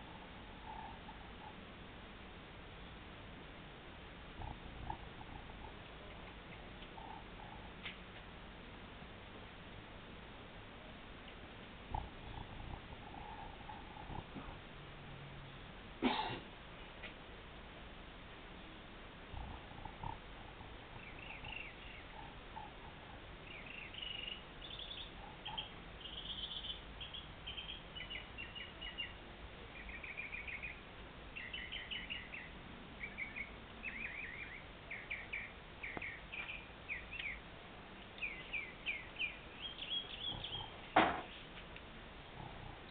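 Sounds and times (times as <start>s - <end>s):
small bird chirping: 19.4s - 30.8s, 31.4s - 41.5s.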